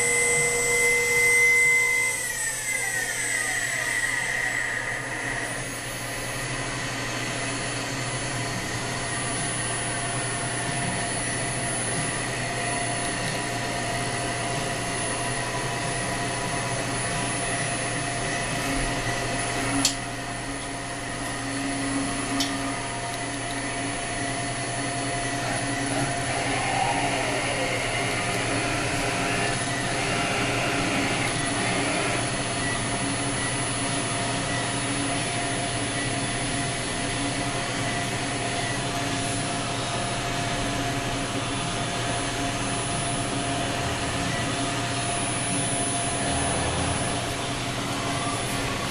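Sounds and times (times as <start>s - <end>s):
short falling whine: 0.0s - 36.2s
grinder machine whirring hum: 0.0s - 48.9s.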